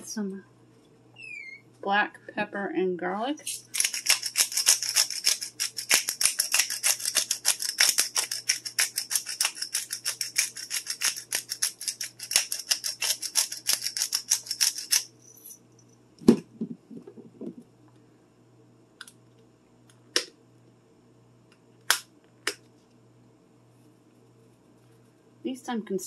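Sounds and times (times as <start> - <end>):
pepper crunching rattle: 3.5 - 15.1.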